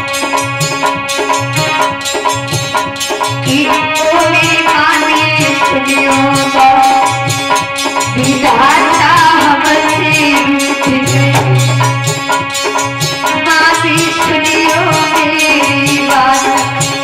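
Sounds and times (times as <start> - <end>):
drum beat: 0.0 - 17.0
steady held notes: 0.0 - 17.0
woman singing into microphone: 3.4 - 12.1, 13.2 - 17.0.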